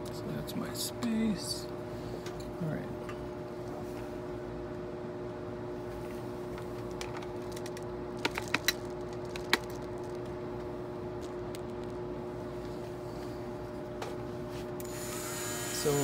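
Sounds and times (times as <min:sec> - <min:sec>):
manicure drill humming: 0:14.8 - 0:16.0.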